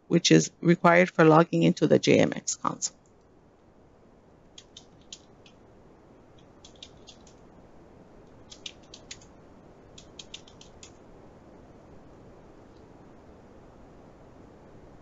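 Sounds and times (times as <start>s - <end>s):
keyboard keystrokes: 4.6s - 5.6s, 6.6s - 7.4s, 8.5s - 9.3s, 10.0s - 11.0s.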